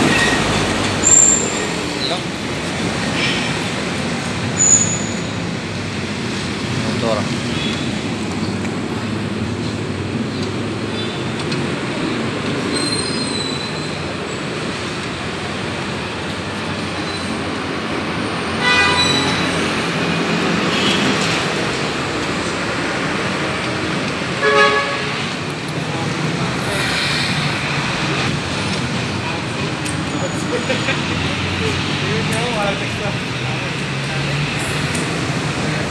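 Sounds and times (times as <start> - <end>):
street traffic noise: 0.0 - 35.9
vehicle horn tooting: 18.6 - 19.6, 24.4 - 25.2.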